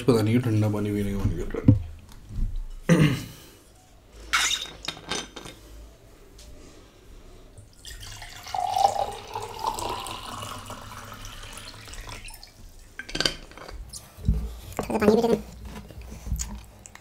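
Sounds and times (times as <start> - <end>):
water pouring into glass mug: 7.7 - 12.6.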